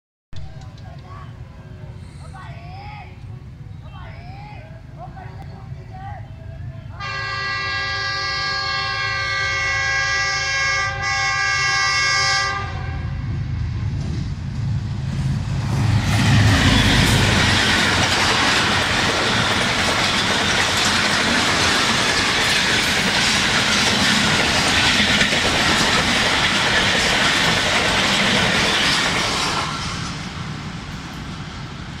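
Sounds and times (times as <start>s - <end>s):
train horn: 7.0s - 13.6s
locomotive engine rumble: 12.7s - 32.0s
train wheels clattering on rails: 13.9s - 32.0s.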